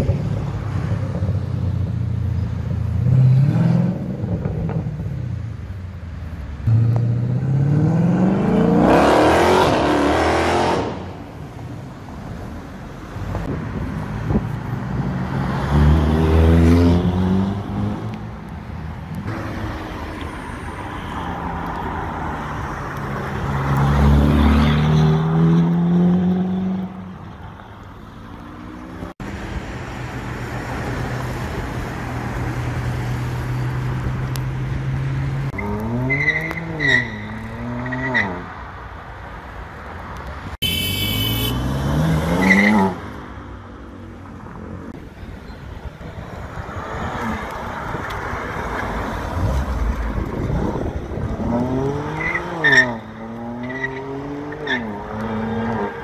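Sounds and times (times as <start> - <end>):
engine revving: 6.7 - 11.0.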